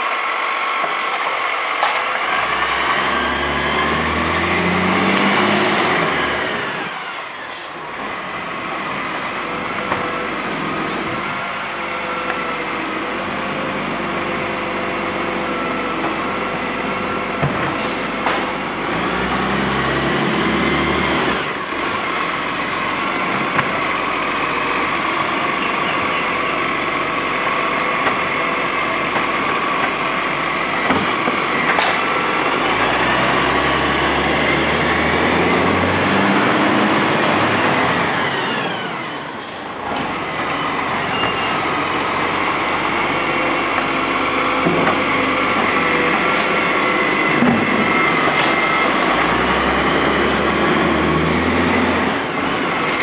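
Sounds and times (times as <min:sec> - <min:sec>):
truck engine and hydraulics: 0:00.0 - 0:53.0
air brake hisses: 0:00.9 - 0:01.4, 0:07.1 - 0:07.9, 0:17.7 - 0:18.2, 0:39.2 - 0:39.8.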